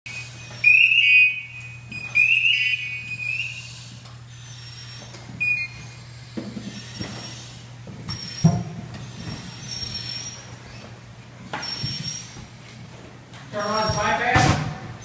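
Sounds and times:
shrill chirping alarm: 0.1 - 10.9, 11.5 - 12.6, 13.6 - 14.2.

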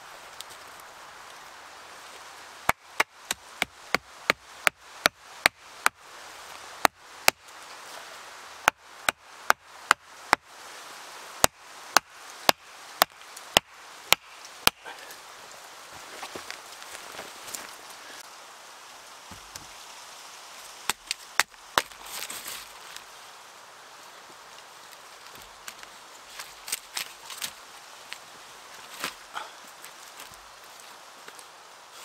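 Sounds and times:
axe chopping wood: 11.4 - 14.8.

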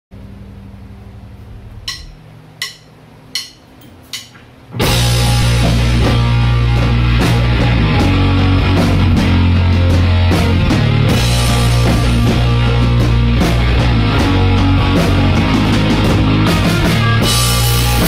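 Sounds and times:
amplifier hum: 0.2 - 18.0
drumstick clicks: 1.9 - 4.5
rock band playing: 4.7 - 18.0.

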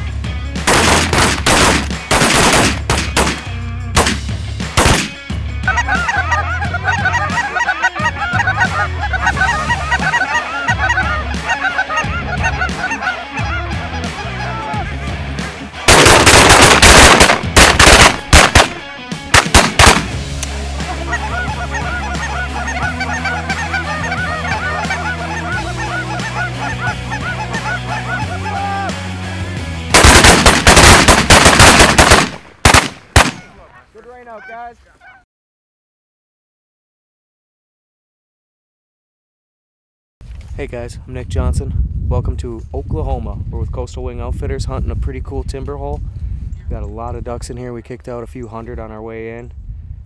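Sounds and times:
shotgun volleys: 0.7 - 5.2, 15.9 - 18.8, 19.4 - 20.2, 30.0 - 33.5
geese cackling overhead: 5.6 - 15.1, 20.7 - 28.9, 33.4 - 35.3.

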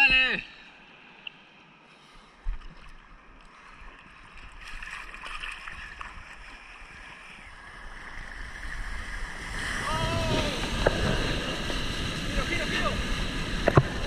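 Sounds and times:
seawater lapping and sloshing: 2.4 - 12.3.

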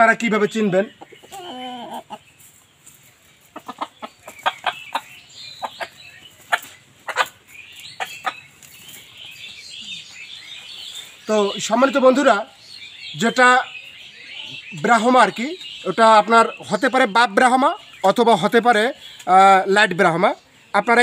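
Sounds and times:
chicken clucking: 0.3 - 11.5.

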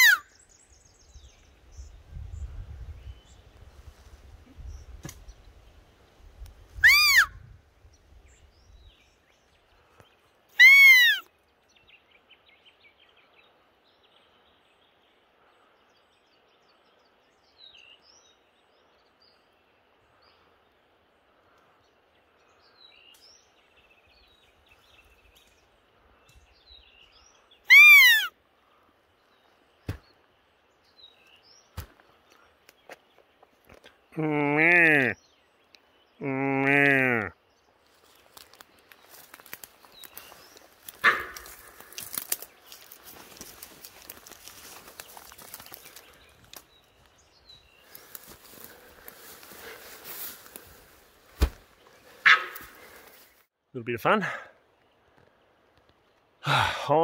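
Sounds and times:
deer call squeaker: 0.0 - 0.2, 6.8 - 7.3, 10.6 - 11.3, 27.7 - 28.3
rustling leaves and twigs: 0.0 - 11.7, 37.6 - 53.5.

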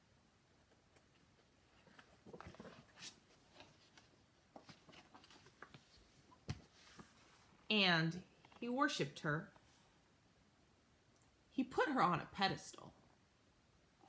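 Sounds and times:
book pages rustling: 0.8 - 7.7.

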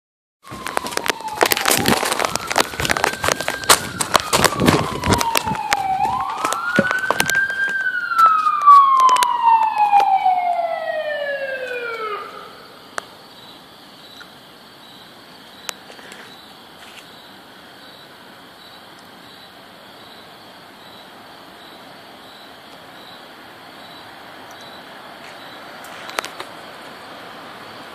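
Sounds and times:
sharp crackling clicks: 0.4 - 10.6
ambulance siren wailing: 0.4 - 12.8.

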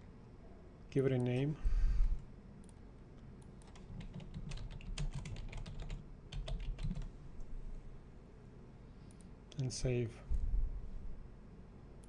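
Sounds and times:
keyboard typing: 3.4 - 7.1.

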